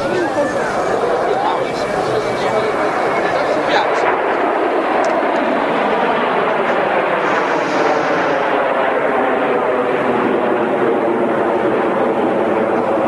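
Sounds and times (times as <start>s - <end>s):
jet roar overhead: 0.0s - 13.0s
brief high hiss: 7.2s - 8.5s.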